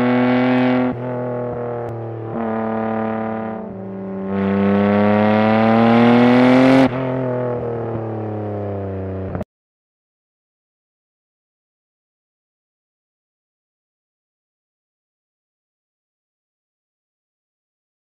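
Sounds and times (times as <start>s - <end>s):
sports car engine revving: 0.0s - 9.4s.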